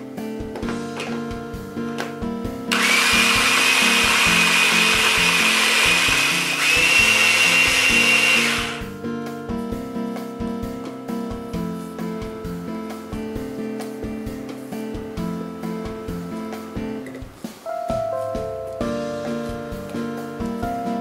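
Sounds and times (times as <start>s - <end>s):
hand blender motor whining: 2.7s - 8.9s.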